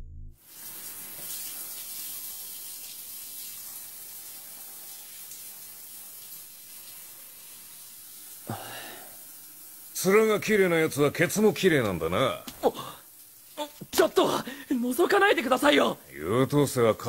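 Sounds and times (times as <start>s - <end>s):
shower spraying water: 0.4s - 17.0s.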